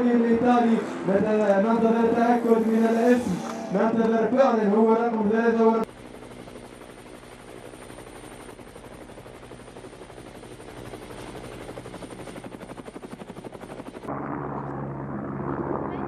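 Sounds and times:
thin high whine: 0:00.0 - 0:05.8
helicopter rotor chopping: 0:00.0 - 0:14.4.

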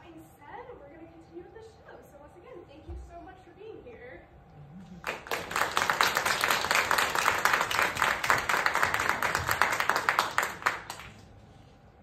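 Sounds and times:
audience applauding: 0:05.0 - 0:11.2.

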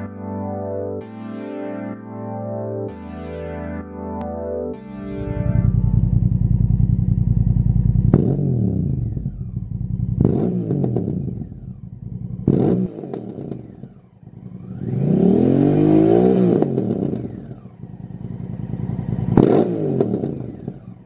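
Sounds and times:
motorcycle engine revving: 0:05.1 - 0:21.0.

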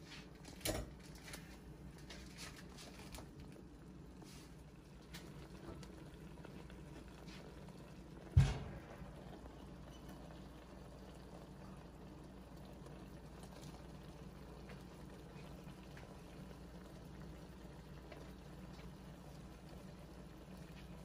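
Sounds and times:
sauce simmering in frying pan: 0:00.0 - 0:21.0.

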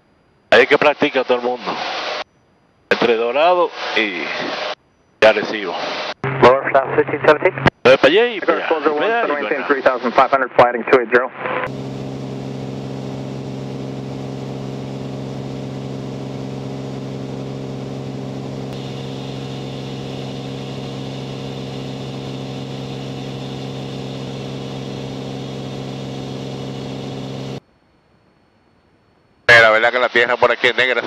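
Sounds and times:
plane engine and propeller droning: 0:11.7 - 0:27.6.

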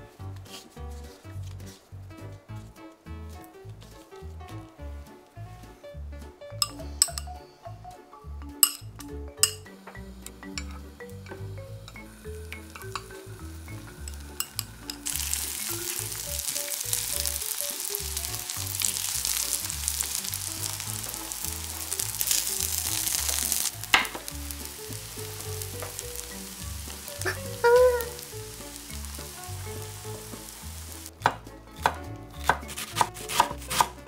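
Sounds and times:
tofu sizzling in oil: 0:09.4 - 0:31.2
knife chopping on wooden board: 0:31.2 - 0:34.0.

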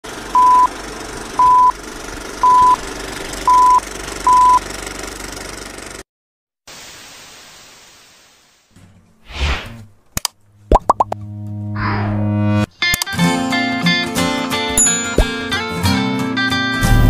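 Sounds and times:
hiss: 0:06.7 - 0:08.7.

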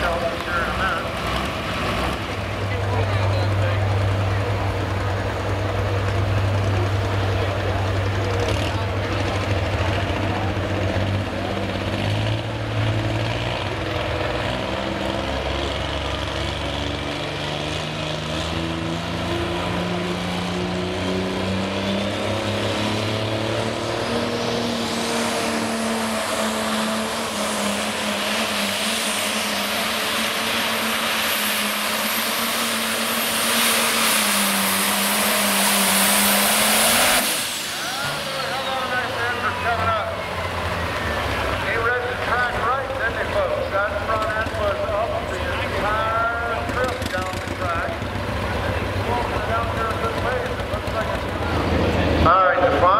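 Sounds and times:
high turbo whine: 0:00.0 - 0:52.9
tractor diesel engine running: 0:00.0 - 0:52.9.

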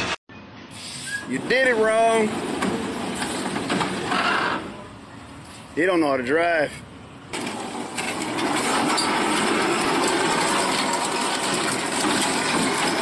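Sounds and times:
truck engine running: 0:06.9 - 0:13.0.

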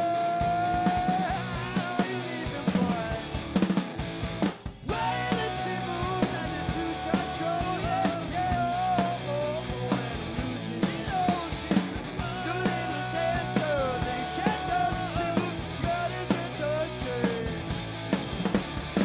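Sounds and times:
bass guitar: 0:00.0 - 0:19.0
drum kit beat: 0:00.0 - 0:19.0
electric guitar: 0:00.0 - 0:19.0.

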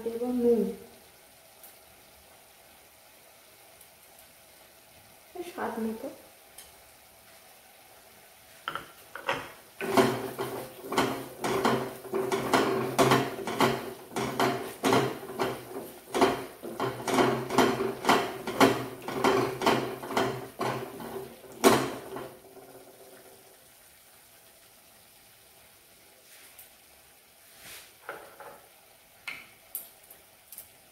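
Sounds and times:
wooden spatula scraping pan: 0:08.7 - 0:22.5
pan knocking and ringing: 0:09.2 - 0:22.4.

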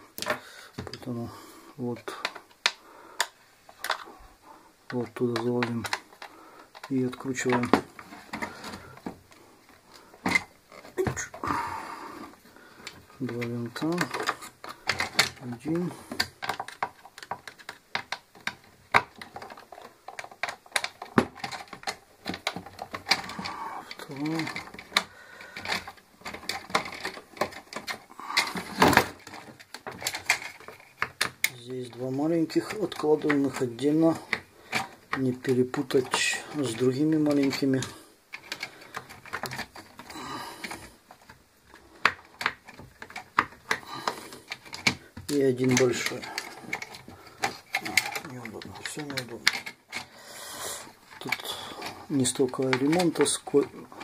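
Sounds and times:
small parts clicking on wood: 0:00.1 - 0:01.2, 0:02.0 - 0:54.0
hard plastic clicks and taps: 0:16.1 - 0:31.6.

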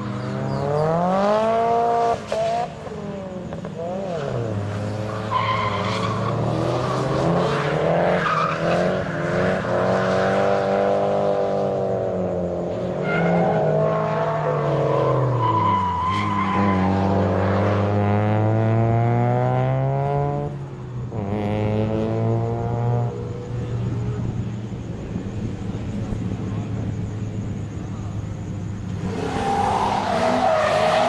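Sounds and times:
car engines revving: 0:00.0 - 0:31.0
tyre squeal: 0:05.1 - 0:10.2, 0:14.4 - 0:17.1, 0:29.0 - 0:31.0.

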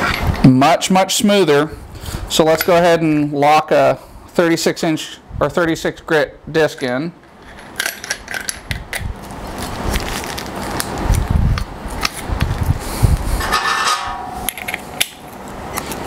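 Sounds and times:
short metal rattle: 0:13.4 - 0:15.0.

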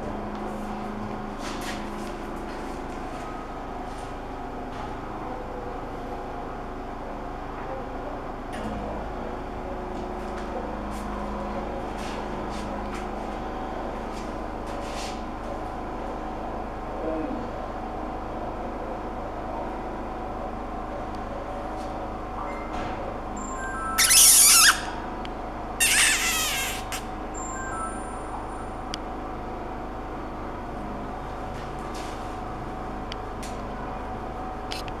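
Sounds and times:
steady mechanical hum: 0:00.0 - 0:35.0.

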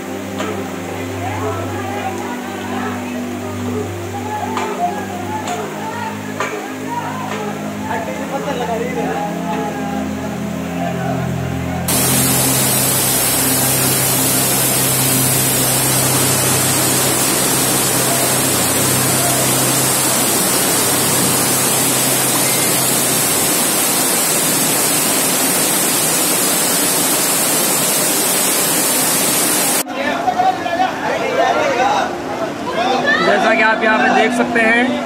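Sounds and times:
heavy rain rushing: 0:11.9 - 0:29.8
low hum: 0:11.9 - 0:29.8.

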